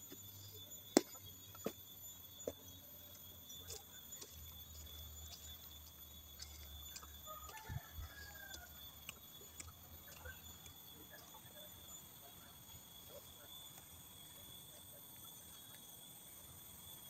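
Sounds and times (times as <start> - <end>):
insects droning: 0.0 - 17.0
faint ticks: 3.5 - 11.4.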